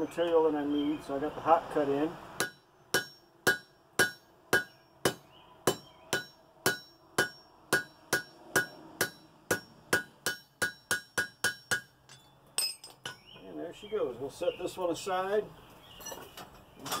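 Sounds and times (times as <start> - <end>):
hammer striking steel on anvil: 2.4 - 13.3.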